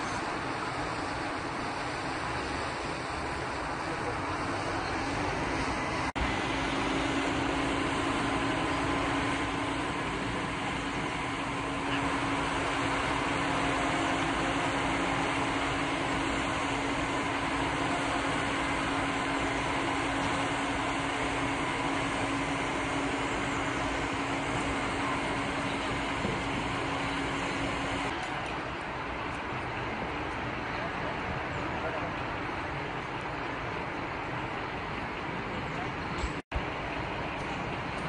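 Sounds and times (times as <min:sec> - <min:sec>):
firehose spraying: 0:00.0 - 0:29.5
fire engine humming: 0:00.0 - 0:38.0.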